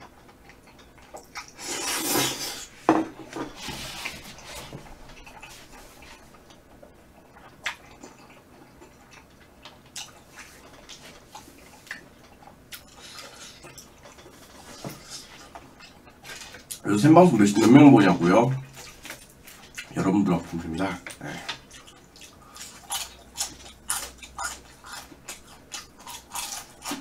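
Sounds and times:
quiet chewing: 0.0 - 2.8, 3.4 - 16.9, 18.6 - 27.0
slurping noodles: 1.5 - 2.7.

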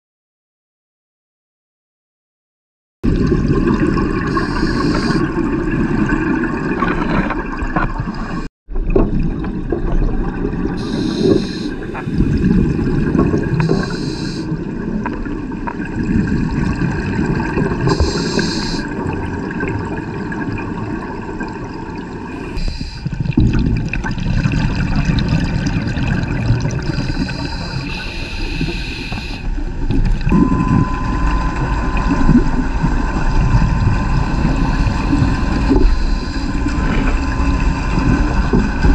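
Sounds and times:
low rumbling underwater noise: 3.0 - 38.9
scuba regulator hiss: 4.3 - 5.3, 10.8 - 12.3, 13.6 - 14.5, 17.9 - 18.9, 22.6 - 23.1, 26.9 - 29.5.

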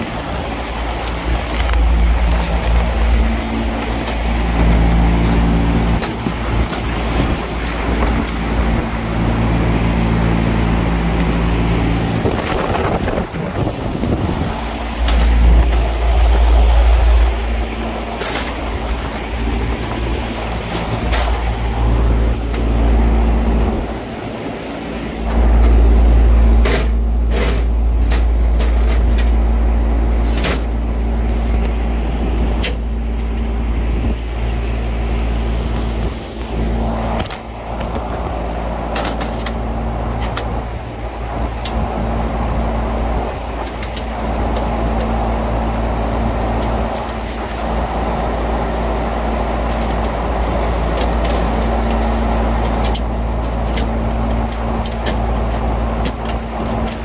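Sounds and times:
low rumble: 0.0 - 43.4
refrigeration condenser humming: 0.0 - 57.0.

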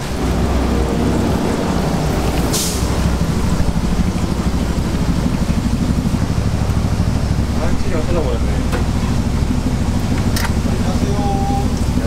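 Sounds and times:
deep-fryer oil sizzling: 0.0 - 7.5
steady low rumble: 0.0 - 12.0
brief hiss: 2.5 - 2.9.

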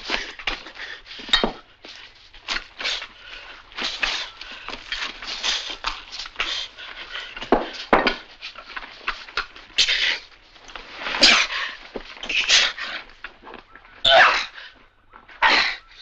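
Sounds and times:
rustling and clattering: 0.0 - 14.0
man grunting and squealing: 14.0 - 14.6.

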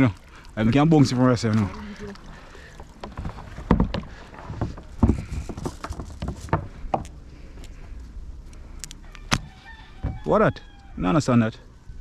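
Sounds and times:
paddle knocking and splashing: 1.4 - 7.1.

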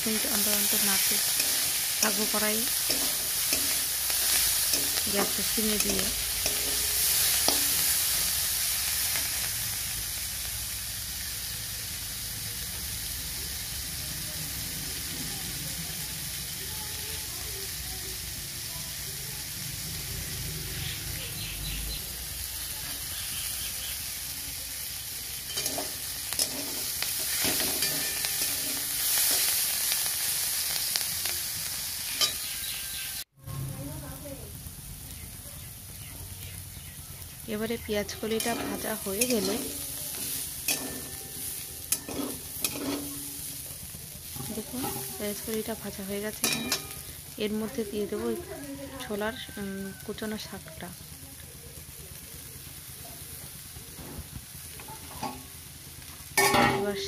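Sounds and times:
onions sizzling in oil: 0.0 - 57.0
spatula scraping a metal pan: 25.5 - 29.6, 38.4 - 43.6, 44.3 - 45.2.

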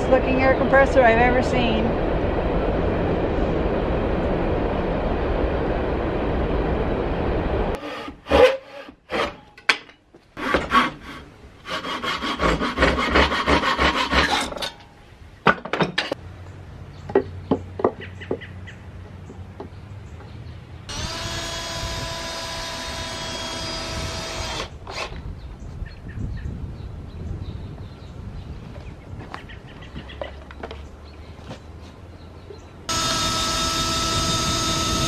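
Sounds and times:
wood and metal clatter: 8.0 - 11.1, 12.4 - 16.2
small electric motor humming: 20.9 - 25.1, 32.9 - 35.0.

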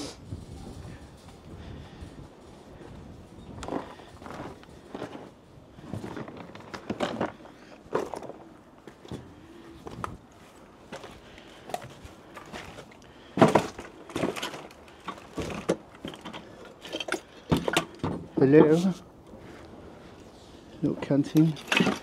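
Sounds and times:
objects knocking and clattering: 13.4 - 18.7, 21.5 - 22.0.

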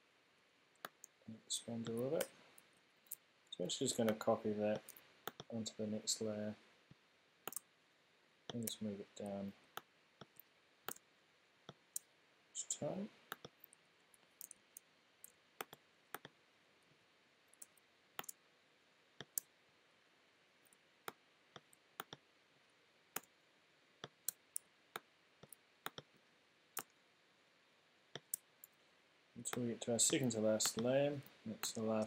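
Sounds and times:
computer mouse clicking: 4.8 - 5.5, 7.5 - 7.7, 9.8 - 11.0, 13.3 - 13.8, 14.4 - 16.4, 17.6 - 18.4, 19.2 - 19.5, 21.1 - 22.2, 24.0 - 26.1, 28.2 - 28.8, 29.5 - 30.9.

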